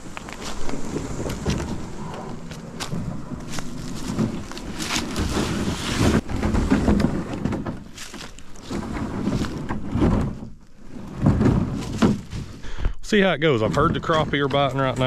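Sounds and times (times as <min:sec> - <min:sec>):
canoe scraping over rocks: 0:00.0 - 0:15.0.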